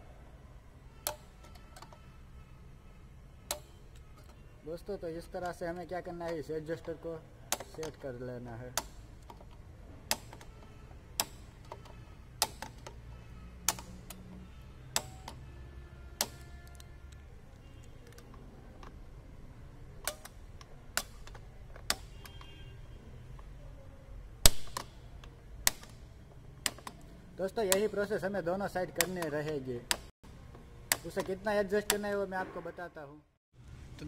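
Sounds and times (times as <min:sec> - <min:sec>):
brake adjuster clicking: 0:01.0 - 0:02.0, 0:03.4 - 0:04.4, 0:05.2 - 0:13.0, 0:13.6 - 0:15.4, 0:16.1 - 0:19.0, 0:19.9 - 0:22.6, 0:24.4 - 0:32.2.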